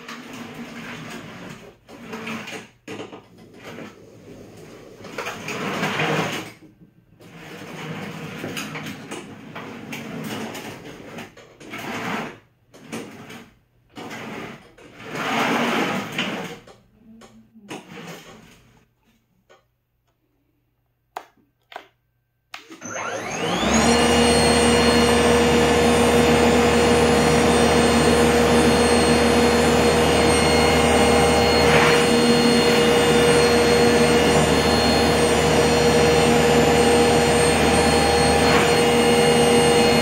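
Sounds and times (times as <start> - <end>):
snow blower electric motors whirring: 22.7 - 40.0.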